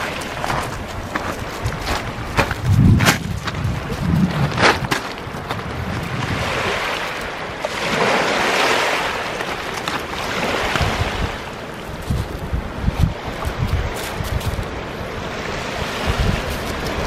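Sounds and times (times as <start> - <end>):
waves washing onto pebble shore: 0.0 - 17.0
low thumps: 2.3 - 6.3.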